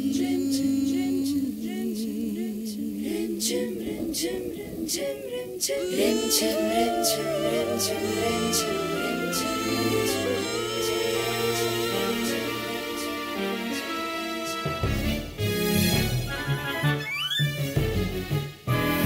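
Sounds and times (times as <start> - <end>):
person singing ornamented melody: 0.0 - 14.7
voices and instruments: 0.0 - 18.0.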